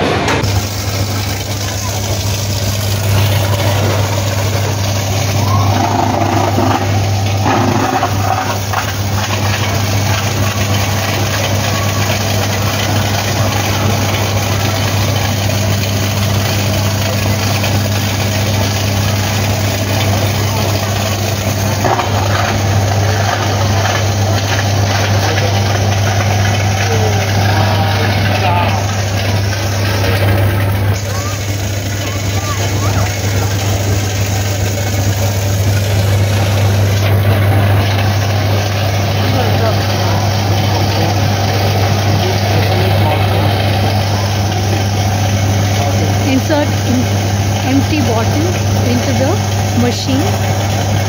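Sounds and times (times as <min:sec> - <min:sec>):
recycling machine humming: 0:00.0 - 0:51.0
faint voices: 0:01.0 - 0:09.2, 0:19.2 - 0:35.2, 0:39.0 - 0:50.5.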